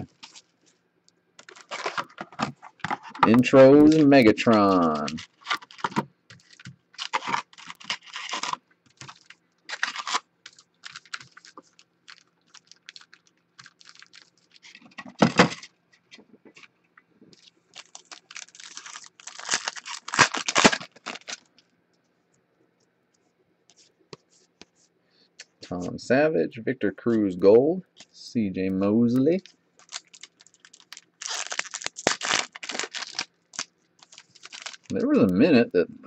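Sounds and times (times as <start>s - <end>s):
foil wrappers crinkling and tearing: 0.0s - 0.5s, 1.4s - 15.7s, 17.4s - 21.6s, 29.3s - 35.2s.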